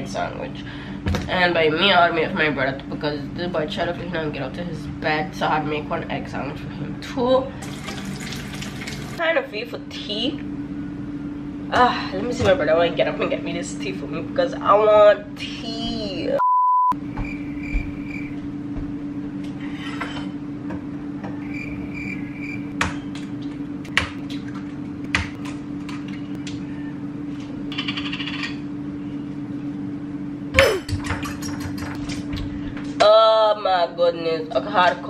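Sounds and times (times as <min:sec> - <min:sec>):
low hum: 0:13.8 - 0:31.0.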